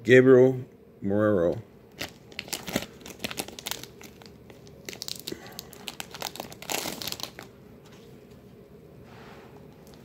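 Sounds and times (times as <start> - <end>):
plastic sleeves crinkling and clicking: 2.0 - 7.5.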